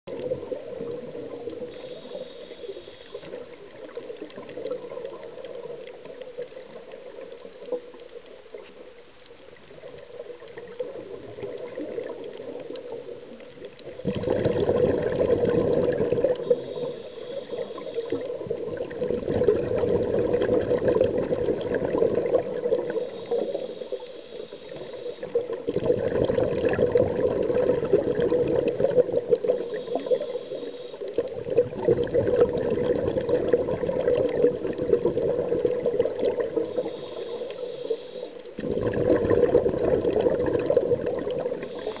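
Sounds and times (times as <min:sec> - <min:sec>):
regulator hissing inhale: 0:01.5 - 0:03.6, 0:16.2 - 0:18.4, 0:22.7 - 0:25.6, 0:29.4 - 0:31.3, 0:36.4 - 0:38.6, 0:41.5 - 0:42.0
rush of exhaust bubbles: 0:13.8 - 0:17.0, 0:17.6 - 0:23.4, 0:24.8 - 0:30.3, 0:31.1 - 0:36.9, 0:38.5 - 0:42.0.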